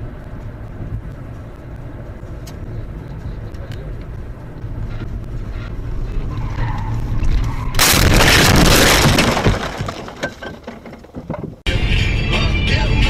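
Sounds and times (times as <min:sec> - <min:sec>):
car road noise: 0:00.0 - 0:12.2
loud car crash: 0:07.3 - 0:11.6.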